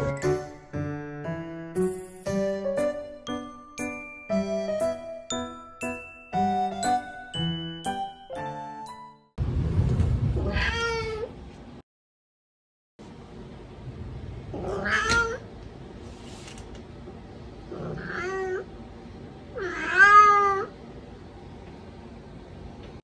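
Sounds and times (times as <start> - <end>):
cat meowing: 10.4 - 11.3, 14.6 - 15.4, 17.8 - 18.7, 19.6 - 20.7.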